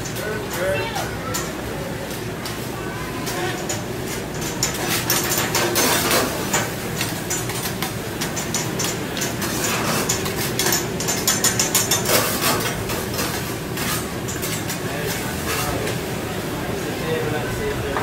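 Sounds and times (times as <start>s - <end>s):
metal spatulas scraping griddle: 4.7s - 6.6s, 9.4s - 10.8s, 11.6s - 15.8s.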